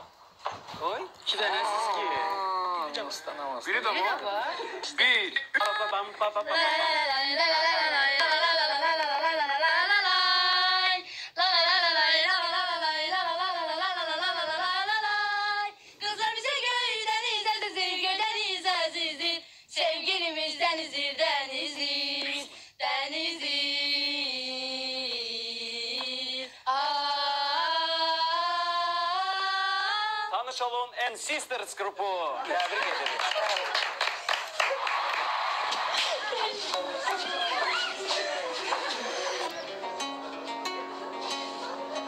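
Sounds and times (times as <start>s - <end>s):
women singing unaccompanied: 6.4s - 30.3s.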